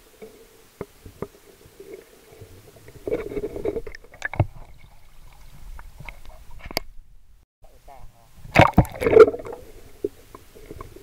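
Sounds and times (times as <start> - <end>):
rushing sloshing water: 8.4 - 11.0.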